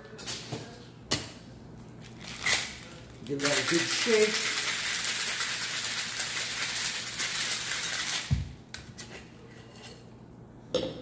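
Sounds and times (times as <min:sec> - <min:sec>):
ice rattling in a metal shaker: 0:02.2 - 0:08.3.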